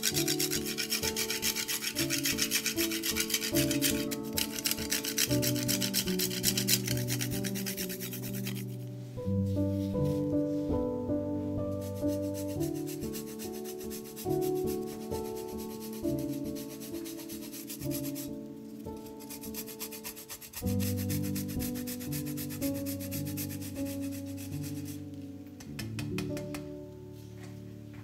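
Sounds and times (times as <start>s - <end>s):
cheese grating on grater: 0.0s - 8.8s, 11.9s - 18.3s, 19.0s - 25.0s
soft background music: 0.0s - 28.0s.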